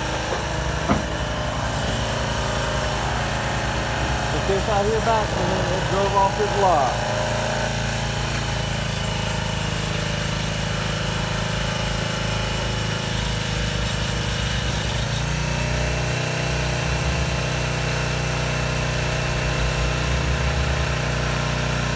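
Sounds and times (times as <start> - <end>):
log loader engine running: 0.0 - 15.8
thin high steady tone: 4.1 - 8.0.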